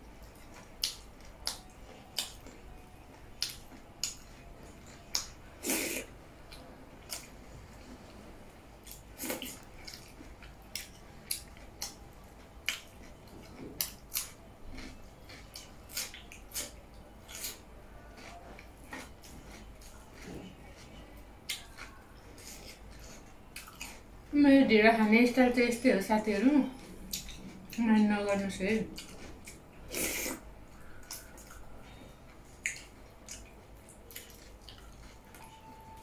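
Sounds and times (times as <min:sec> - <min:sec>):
wet lip smacks while chewing: 0:32.6 - 0:35.0.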